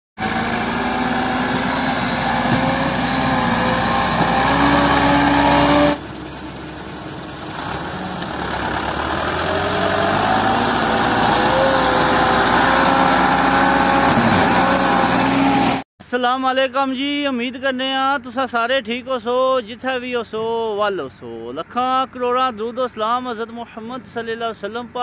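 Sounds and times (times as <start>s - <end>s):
tractor diesel engine running hard: 0.2s - 15.8s.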